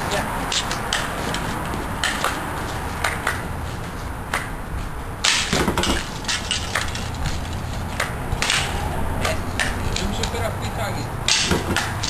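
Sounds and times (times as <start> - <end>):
bb gun shots cracking: 5.2 - 7.0, 11.3 - 12.0.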